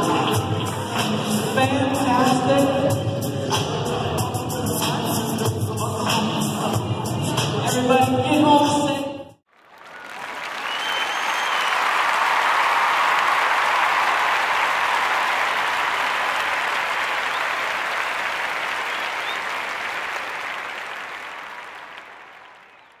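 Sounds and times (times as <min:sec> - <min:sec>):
audience applauding: 0:09.5 - 0:23.0.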